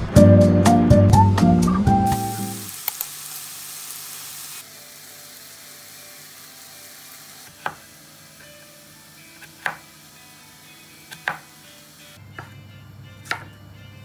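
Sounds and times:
food sizzling in a pan: 2.1 - 12.2
knife striking cutting board: 9.4 - 9.9, 11.1 - 11.5, 13.2 - 13.5.

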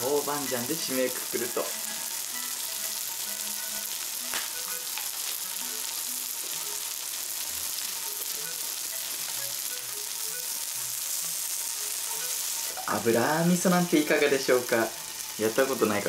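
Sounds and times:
meat sizzling on a grill: 0.0 - 16.0.

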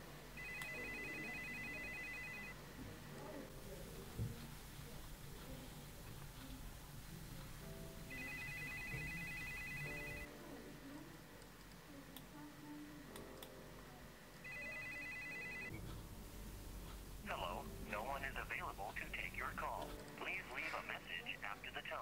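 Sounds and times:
faint background music: 0.0 - 22.0
telephone ringing electronic trill: 0.4 - 2.6, 8.1 - 10.3, 14.5 - 15.7.

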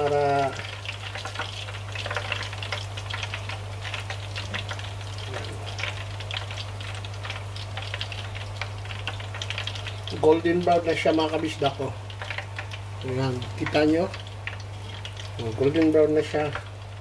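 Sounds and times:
hot oil sizzling and popping: 0.0 - 17.0.

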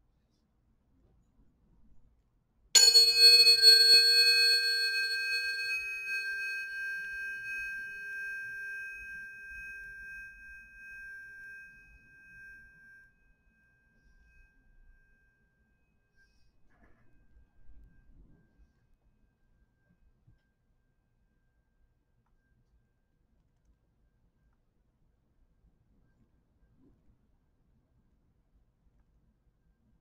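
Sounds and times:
tuning forks ringing: 2.8 - 15.2.

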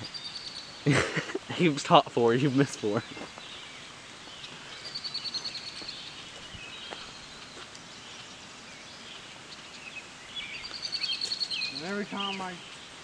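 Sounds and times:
faint bird chirps: 0.0 - 13.0
bird high-pitched trill: 10.6 - 12.7.

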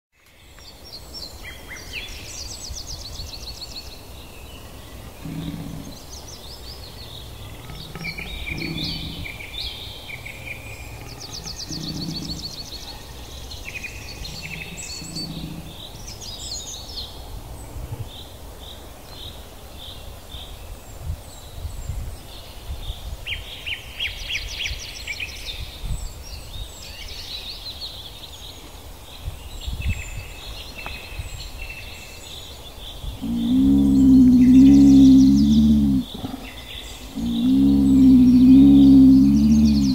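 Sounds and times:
songbirds singing with trills: 0.2 - 39.9
low bird call: 7.3 - 15.8, 33.2 - 39.9.

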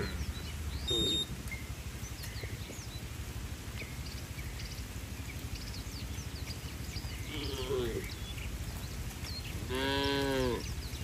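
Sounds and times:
faint bird chirps: 0.0 - 2.9
high beep-like whistle: 0.9 - 1.3.

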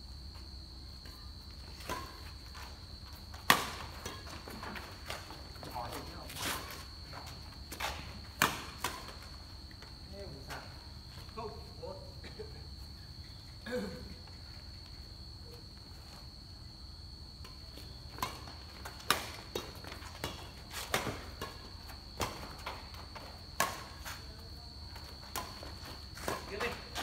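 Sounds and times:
shoes on concrete court: 0.2 - 27.0
rackets smacking shuttlecock: 3.3 - 5.3, 7.7 - 9.3, 17.4 - 24.3.

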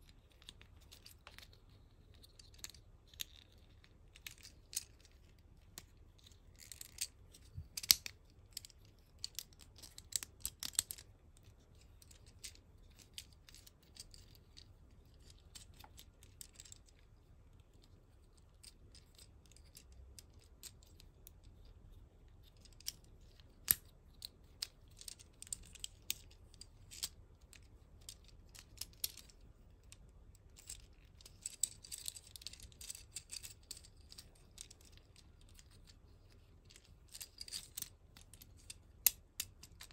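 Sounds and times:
plastic toy parts clicking: 6.5 - 11.1.

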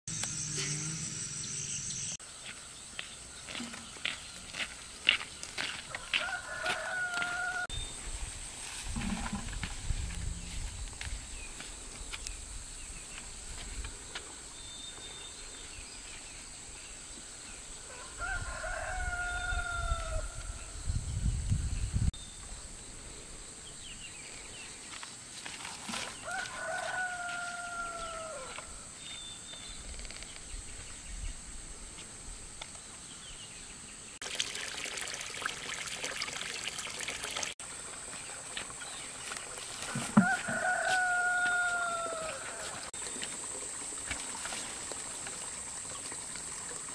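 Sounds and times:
rooster crowing: 5.9 - 7.7, 17.9 - 20.6, 26.2 - 28.7, 40.0 - 42.9.

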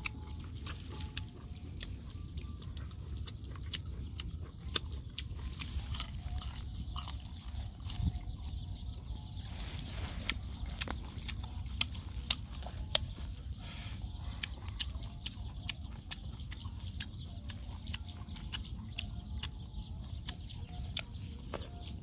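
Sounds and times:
person chewing wet smacks: 0.0 - 9.4, 10.2 - 22.0
wind rumble on microphone: 6.4 - 11.1.

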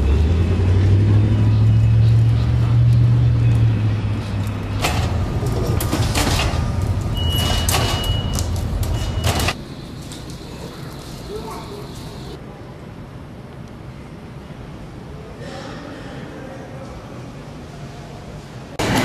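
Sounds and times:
heavy vehicle engine rumbling: 0.0 - 12.4.

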